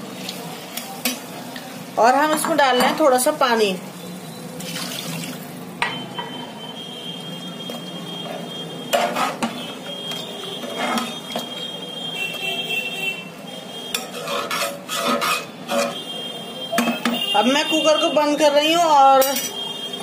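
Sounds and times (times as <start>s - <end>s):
ladle scraping metal pot: 8.2s - 11.7s, 13.9s - 16.1s.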